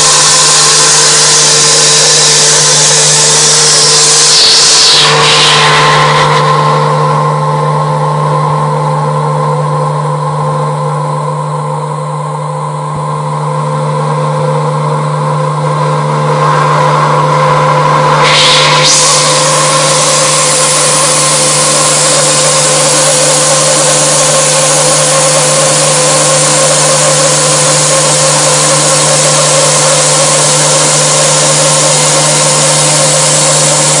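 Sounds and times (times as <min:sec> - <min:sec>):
milling machine spindle whining: 0:00.0 - 0:06.6, 0:16.1 - 0:34.0
endmill cutting metal: 0:00.0 - 0:07.6, 0:15.8 - 0:34.0
steady higher tones: 0:00.0 - 0:34.0.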